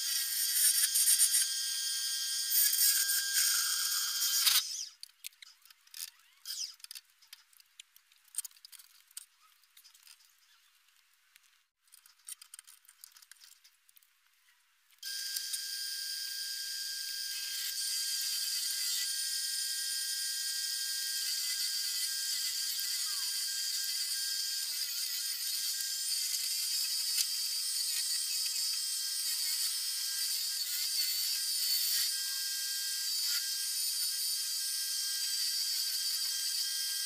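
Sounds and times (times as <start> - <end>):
wood lathe whining: 0.0 - 4.8, 15.1 - 37.0
gouge cutting wood shavings: 17.1 - 37.0.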